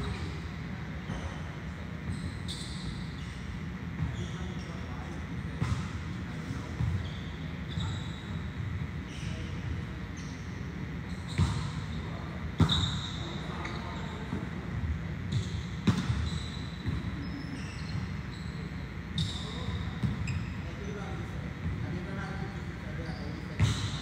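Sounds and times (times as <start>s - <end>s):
short high squeaks: 2.1s - 3.5s, 7.0s - 8.5s, 10.2s - 14.3s, 15.3s - 20.8s.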